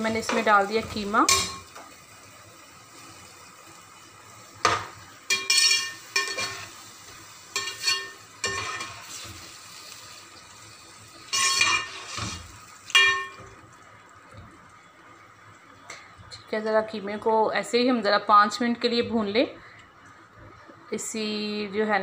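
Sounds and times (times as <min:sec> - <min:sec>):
low frying sizzle: 0:00.0 - 0:22.0
metal fork scraping metal pot: 0:07.6 - 0:09.0, 0:11.3 - 0:12.2.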